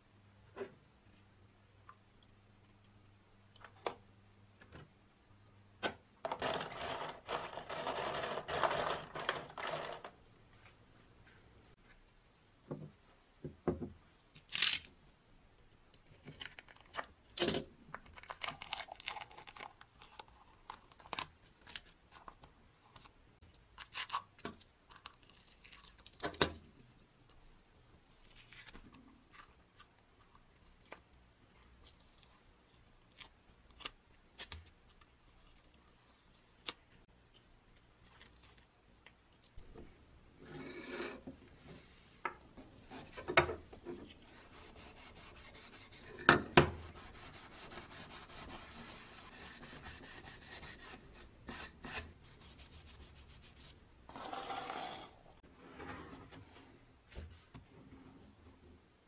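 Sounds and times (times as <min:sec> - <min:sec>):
craft knife scraping paint: 0:44.2 - 0:55.1.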